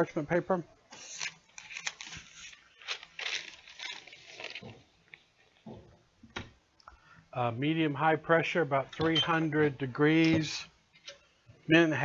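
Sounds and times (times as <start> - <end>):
paper rustling and crinkling: 0.9 - 5.6.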